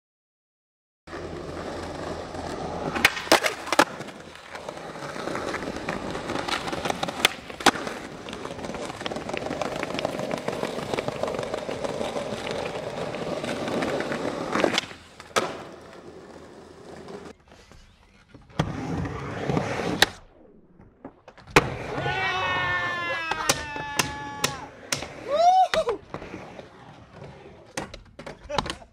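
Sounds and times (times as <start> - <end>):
skateboard wheels rolling on stone: 1.1 - 28.9
skateboard tail clacks: 2.8 - 17.5.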